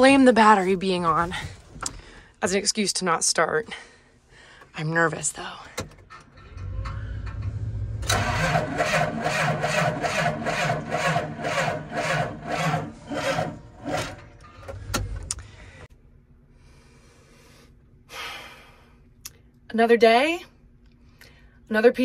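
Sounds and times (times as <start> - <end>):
diesel engine cranking by starter: 5.5 - 15.9.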